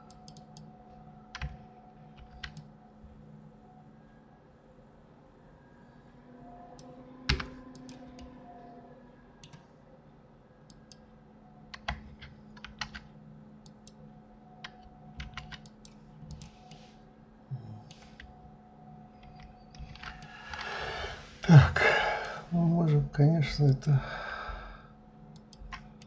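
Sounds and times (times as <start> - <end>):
keyboard keys clicking: 0.0 - 0.7, 1.3 - 2.7, 11.7 - 14.0, 14.6 - 16.8, 19.2 - 20.8, 25.3 - 26.0
faint steady hum: 0.0 - 26.0.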